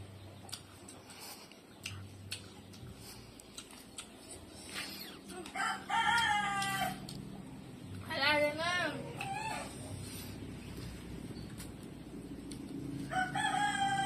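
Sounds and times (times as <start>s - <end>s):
rooster crowing: 5.4s - 7.1s, 13.0s - 14.0s.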